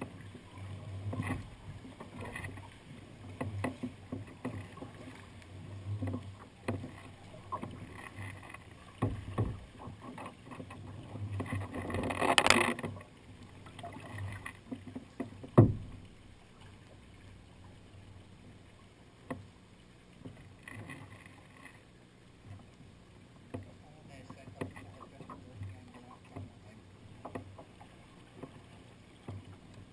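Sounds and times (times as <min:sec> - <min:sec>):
paddle strokes in water: 0:00.0 - 0:29.9
water lapping against hull: 0:00.0 - 0:29.9
small clicks: 0:11.5 - 0:13.0.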